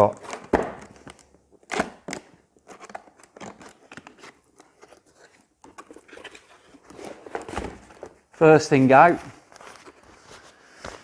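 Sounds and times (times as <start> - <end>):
cardboard scraping and rustling: 2.6 - 11.0.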